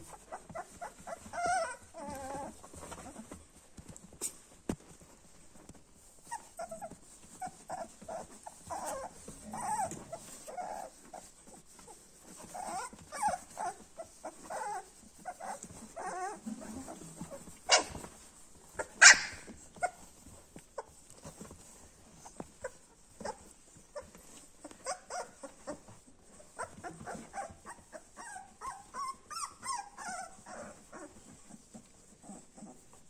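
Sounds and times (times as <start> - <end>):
puppies squeaking and whimpering: 0.0 - 3.4, 6.0 - 32.9
puppy yelps: 17.7 - 18.1, 18.8 - 20.0.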